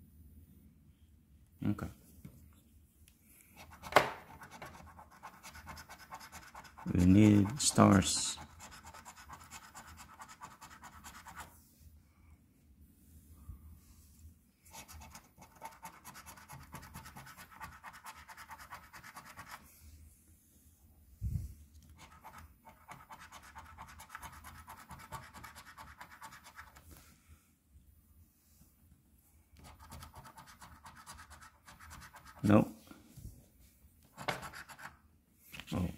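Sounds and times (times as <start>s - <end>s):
coin scratching a lottery ticket: 3.6s - 11.5s, 14.7s - 19.6s, 22.0s - 26.8s, 29.6s - 32.5s, 34.2s - 35.0s.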